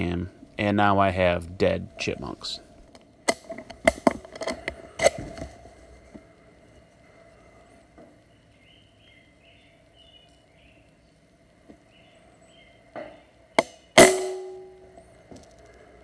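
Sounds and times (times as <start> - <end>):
faint bird chirps: 6.7 - 14.0
air rifle shot crack: 13.6 - 14.6.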